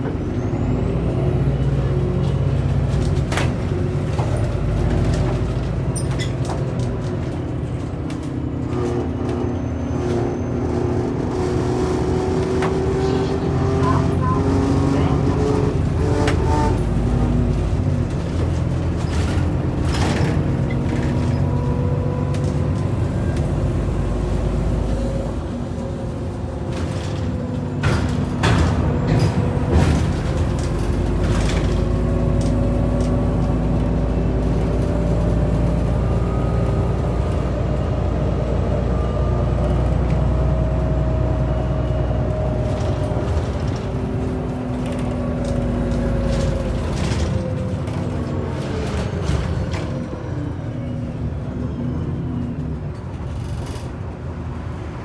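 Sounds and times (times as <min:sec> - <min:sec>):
bus engine whining: 0:00.0 - 0:55.0
rattles and knocks from bus body: 0:02.1 - 0:13.2, 0:14.6 - 0:23.4, 0:24.7 - 0:35.8, 0:39.5 - 0:50.2.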